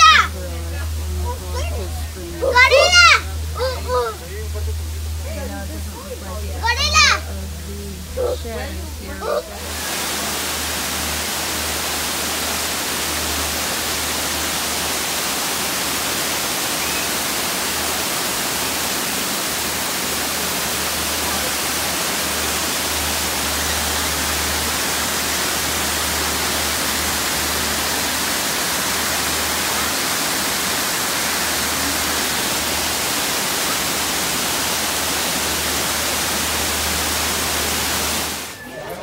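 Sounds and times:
low rumble: 0.0s - 11.8s
waterfall pouring and splashing: 0.0s - 39.0s.

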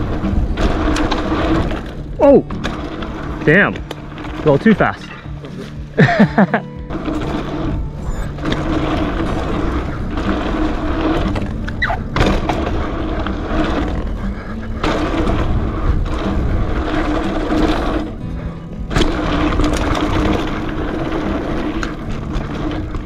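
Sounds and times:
wind noise: 0.0s - 6.1s, 7.0s - 23.0s
bike tyre noise: 0.0s - 23.0s
bike landing thuds: 6.9s - 18.2s.

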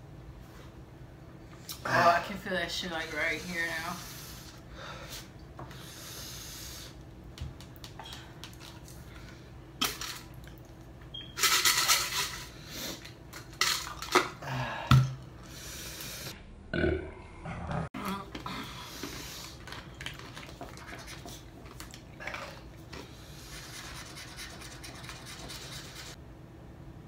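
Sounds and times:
coins scraping tickets: 11.3s - 12.5s.

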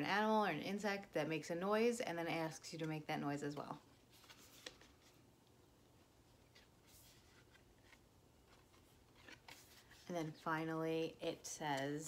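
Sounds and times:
board-book pages turning: 4.0s - 5.3s, 6.3s - 10.5s.

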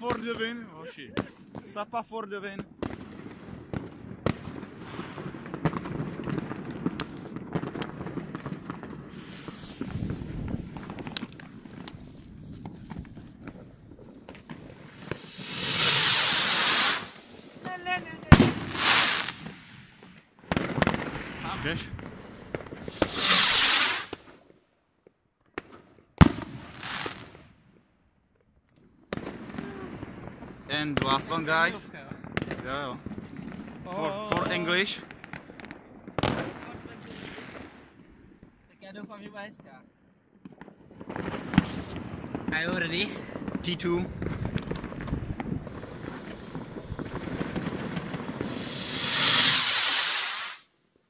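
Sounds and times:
fireworks bangs and crackles: 0.0s - 27.8s, 28.4s - 50.8s
firework sharp bang: 2.8s - 11.9s, 14.3s - 17.3s, 18.2s - 19.7s, 20.5s - 24.2s, 44.2s - 50.7s
high hiss: 15.2s - 17.2s, 22.9s - 24.1s, 48.5s - 50.6s
firework pop: 44.4s - 45.2s.

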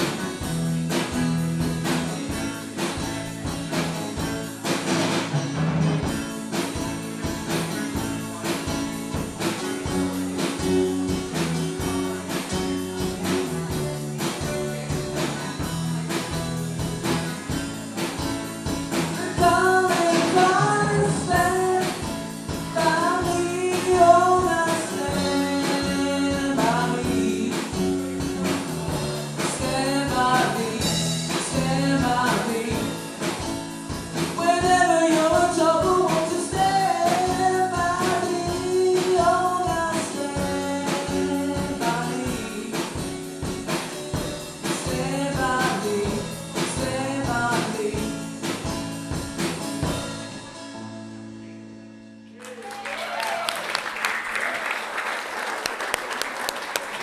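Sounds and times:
live band playing soul ballad: 0.0s - 52.2s
person singing: 18.9s - 28.6s, 29.3s - 33.4s, 34.2s - 43.6s, 44.6s - 48.4s.

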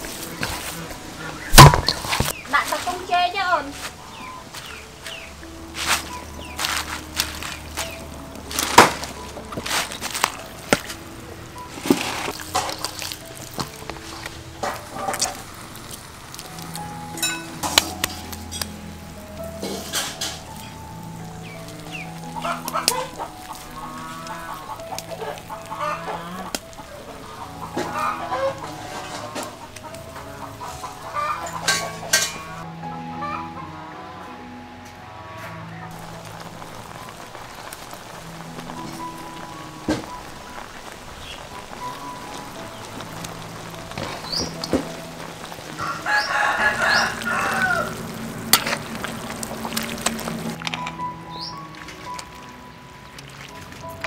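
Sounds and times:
chickens clucking: 0.0s - 18.8s, 19.6s - 34.5s, 38.4s - 50.6s
soft background music: 0.0s - 54.0s
rooster crowing: 45.5s - 49.8s.

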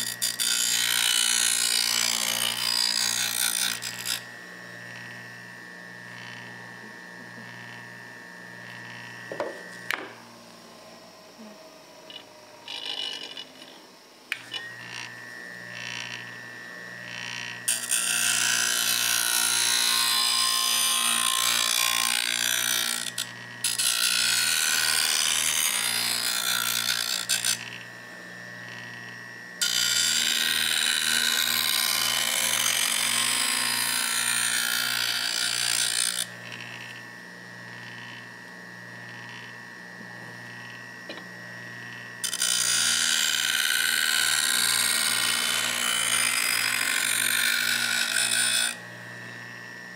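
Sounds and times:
steel grinding on wheel: 0.0s - 4.3s, 12.1s - 15.1s
bench grinder motor humming: 0.0s - 49.9s.

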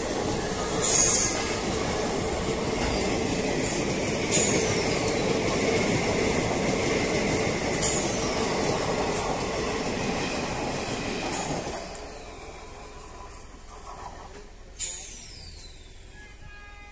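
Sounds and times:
train wheels rumbling on track: 0.0s - 15.5s.

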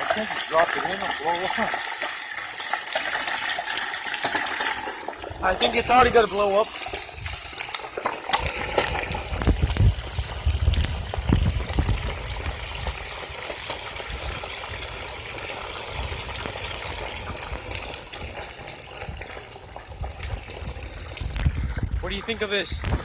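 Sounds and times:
hot oil bubbling and sizzling: 0.0s - 23.0s
low rumbles: 8.4s - 23.0s.

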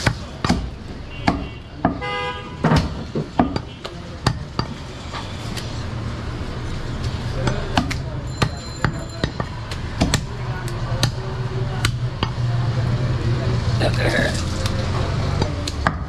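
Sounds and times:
traffic hum: 0.0s - 16.0s
vehicle horn toot: 1.1s - 2.6s.

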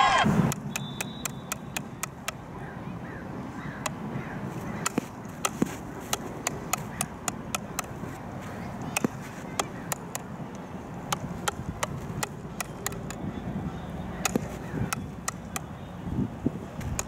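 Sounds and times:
low background noise: 0.0s - 17.0s
ball bouncing on hockey stick: 0.5s - 2.4s, 4.6s - 13.2s, 14.2s - 15.7s, 16.8s - 17.0s.

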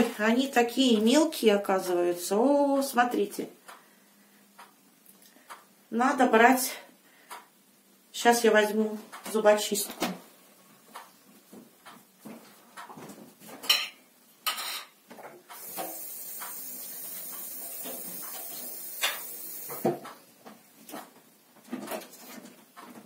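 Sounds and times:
steady high hiss: 15.4s - 21.5s.

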